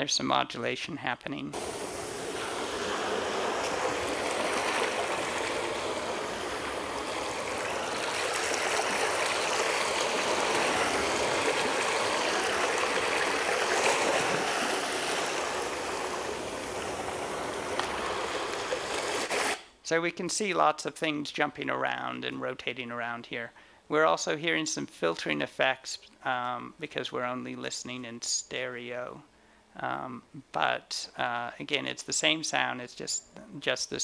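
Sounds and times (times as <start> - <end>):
ocean waves over loudspeakers: 1.6 - 19.5.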